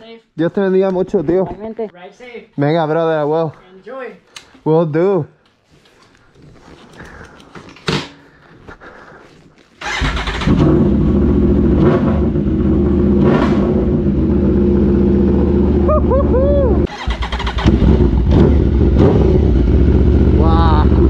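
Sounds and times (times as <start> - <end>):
motorcycle engine starting and idling: 9.8 - 16.0, 16.8 - 21.0.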